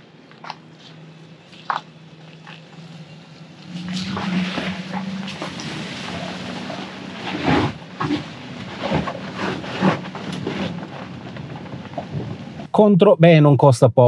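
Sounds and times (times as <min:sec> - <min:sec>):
tyres crunching gravel: 0:00.0 - 0:12.7.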